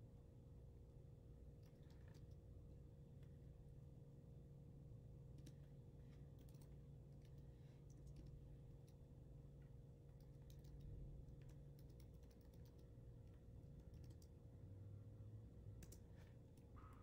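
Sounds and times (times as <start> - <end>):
low steady hum: 0.0 - 17.0
computer keyboard keystrokes: 1.6 - 2.4, 5.3 - 5.7, 6.3 - 9.0, 10.1 - 14.4, 15.8 - 16.7.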